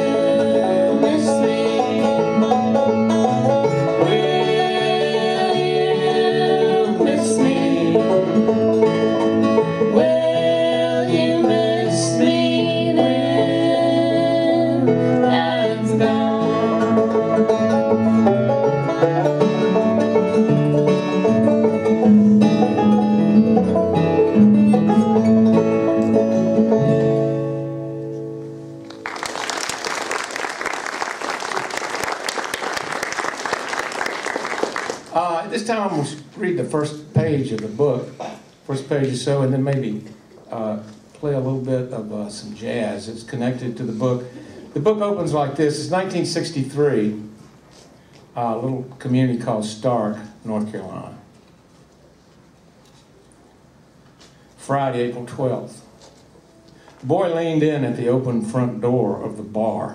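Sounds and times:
banjo and guitar bluegrass tune: 0.0s - 29.0s, 35.1s - 47.8s
audience applause: 28.8s - 35.5s.

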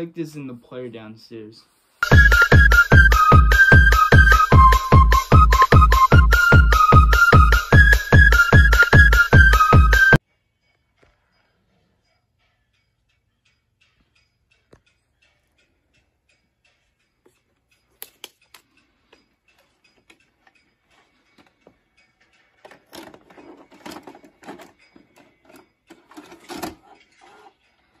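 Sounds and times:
handling clicks and rustles: 22.6s - 27.5s.

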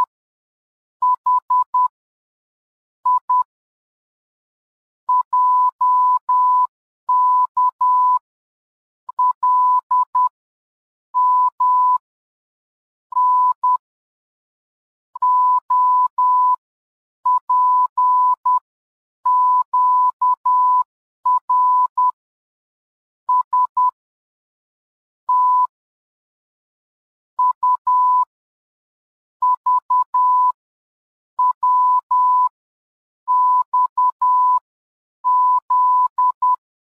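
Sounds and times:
morse code beeps: 1.0s - 1.9s, 3.1s - 3.5s, 5.1s - 8.2s, 9.1s - 10.3s, 13.2s - 13.8s, 15.2s - 16.6s, 17.3s - 18.6s, 19.3s - 22.2s, 23.3s - 24.0s, 25.3s - 25.7s, 27.4s - 28.3s, 29.4s - 30.6s, 31.4s - 32.5s, 33.3s - 34.6s, 35.2s - 36.6s.

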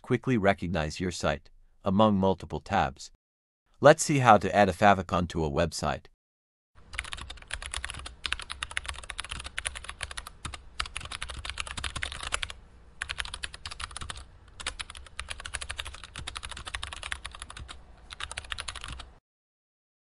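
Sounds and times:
computer keyboard typing: 6.9s - 19.2s.

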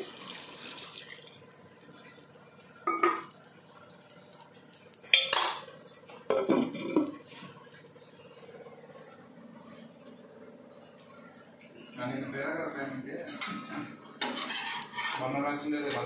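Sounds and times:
kitchenware ringing clatters: 2.8s - 3.3s, 5.1s - 5.7s, 6.3s - 7.2s.

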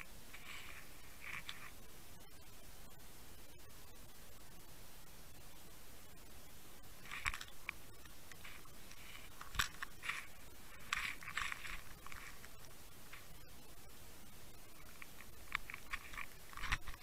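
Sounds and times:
underwater crunching scrapes: 8.4s - 12.5s.

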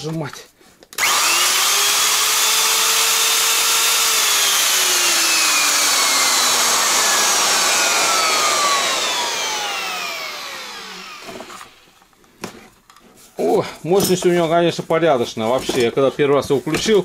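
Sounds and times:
router whining and coasting down: 1.0s - 12.1s.

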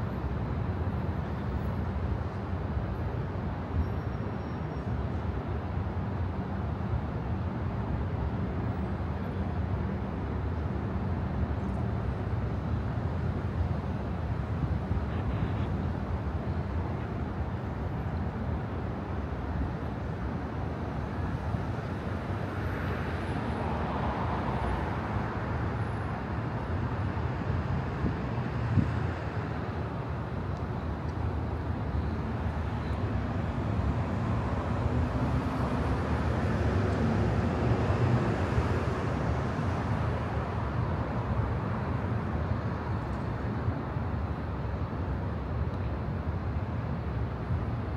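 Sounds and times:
traffic rumble: 8.7s - 47.9s.

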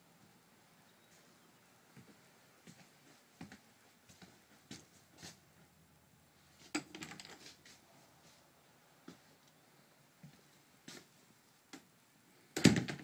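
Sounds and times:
faint footsteps: 1.0s - 5.8s, 7.4s - 9.5s, 10.2s - 11.4s.

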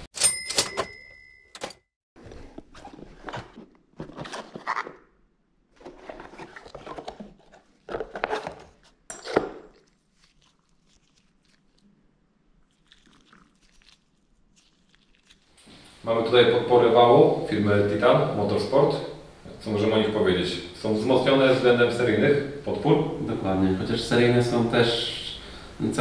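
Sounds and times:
cardboard box rustling and scraping: 2.2s - 5.0s, 5.8s - 9.0s.

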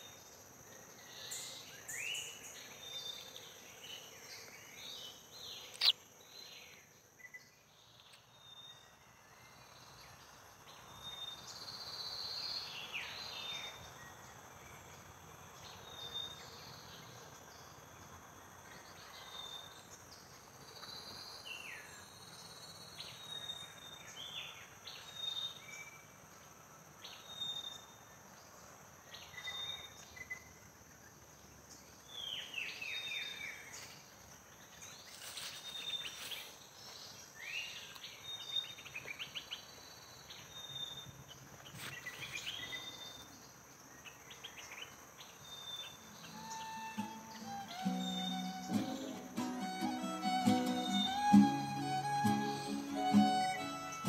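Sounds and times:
birds chirping: 45.9s - 54.0s.

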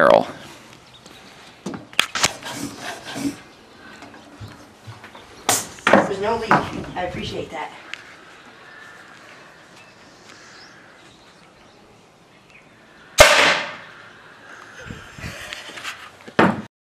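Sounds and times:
pneumatic cannon blast: 5.5s - 5.8s, 13.2s - 13.8s.

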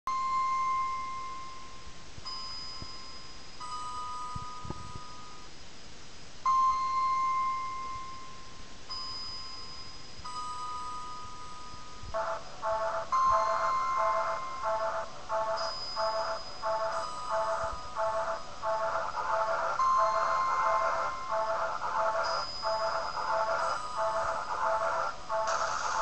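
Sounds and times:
slow electronic melody: 12.2s - 26.0s.

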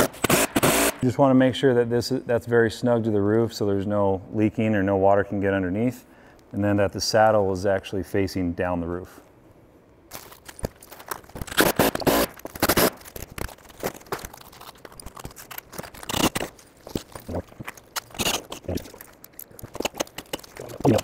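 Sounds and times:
metal parts being handled: 12.4s - 21.0s.

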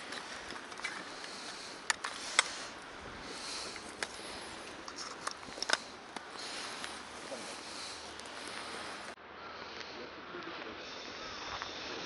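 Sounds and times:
burning grass crackling: 0.0s - 12.0s.

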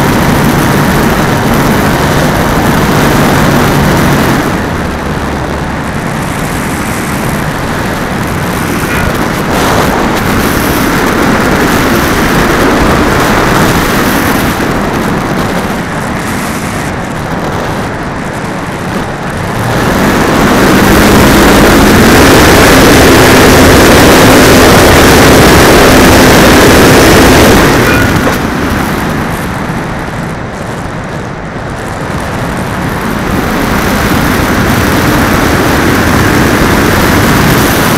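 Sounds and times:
propeller and motor running: 0.0s - 37.9s
wind rush on microphone: 0.0s - 37.9s.

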